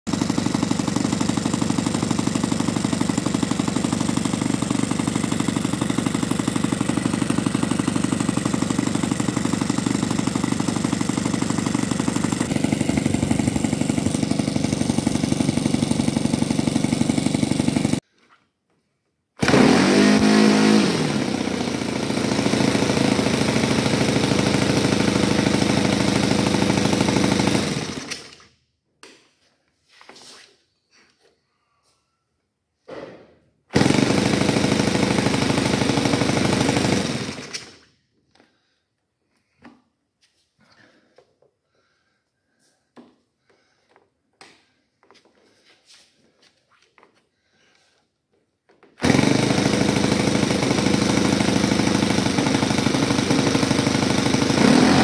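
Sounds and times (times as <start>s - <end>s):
model airplane engine running: 0.1s - 18.0s, 19.4s - 28.4s, 33.8s - 37.5s, 49.0s - 55.0s.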